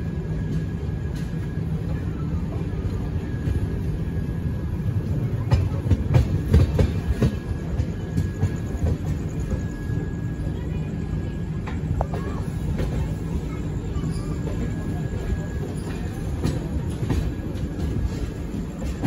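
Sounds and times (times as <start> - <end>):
train rumble: 0.0 - 19.0
train wheels clacking: 5.0 - 10.1, 11.6 - 19.0.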